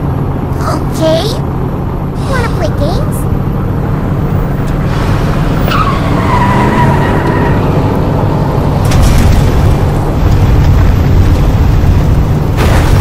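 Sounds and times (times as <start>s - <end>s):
tyre squeal: 5.6s - 7.6s.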